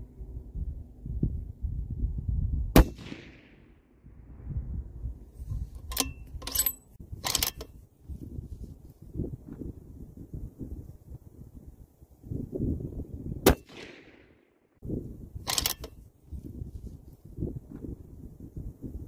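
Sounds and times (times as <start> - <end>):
rifle shot: 2.7 - 3.9, 13.4 - 14.5
rifle bolt clacking: 5.8 - 7.8, 15.5 - 16.0.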